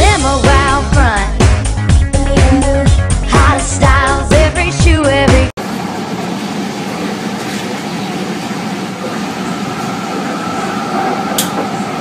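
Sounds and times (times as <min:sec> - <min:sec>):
train running noise inside carriage: 0:05.6 - 0:12.0.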